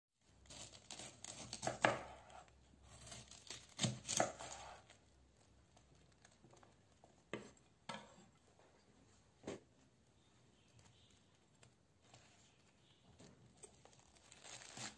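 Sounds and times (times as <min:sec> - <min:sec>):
knife crunching through cabbage: 0:00.4 - 0:05.0, 0:13.7 - 0:14.9.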